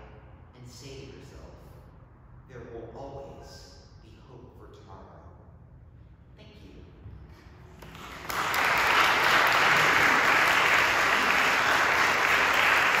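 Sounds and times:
congregation applauding: 7.8s - 13.0s.

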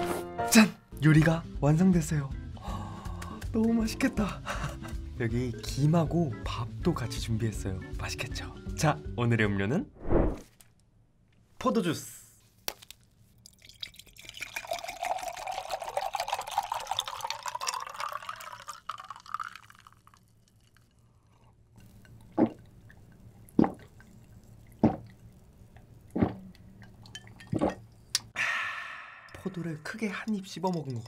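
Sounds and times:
juice pouring into a glass: 13.4s - 28.3s, 29.3s - 31.0s
loud gulps: 23.5s - 24.0s
person sighing ah: 28.4s - 29.4s.

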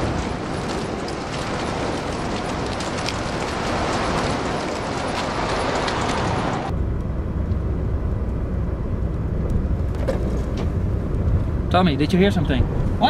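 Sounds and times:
tyre and road noise: 0.0s - 13.0s
engine and road drone in cabin: 5.5s - 11.8s.

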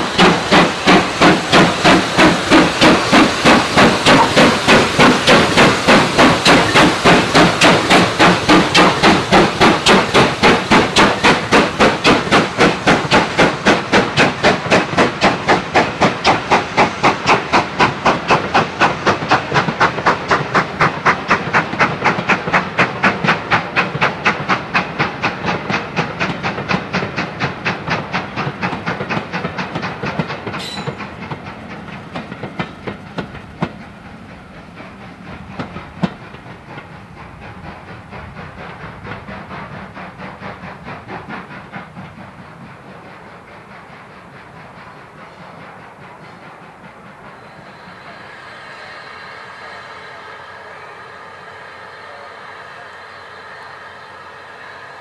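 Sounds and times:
coach wheels rumbling: 0.0s - 55.0s
steam locomotive exhaust beats: 0.0s - 55.0s
wheels clicking over rail joints: 0.2s - 33.8s.

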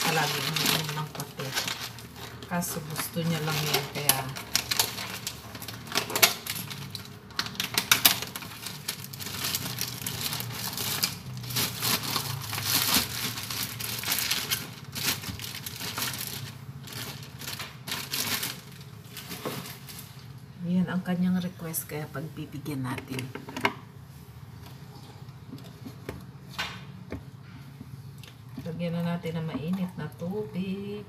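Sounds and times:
plastic bags crinkling: 0.0s - 20.4s.

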